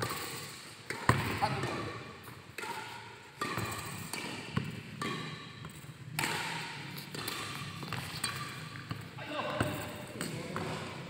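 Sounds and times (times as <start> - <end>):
sharp racket hits: 0.0 - 8.8.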